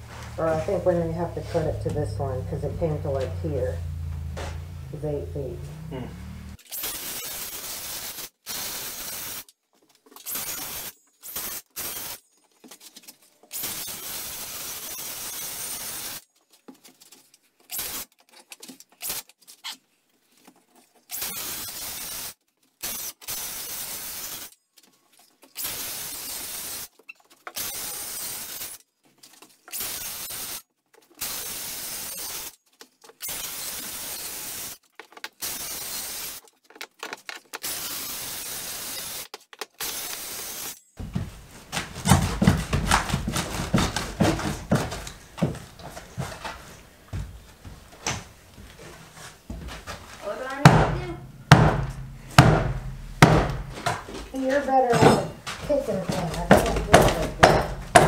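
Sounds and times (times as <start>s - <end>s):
circular saw cutting floor: 0.0s - 9.4s.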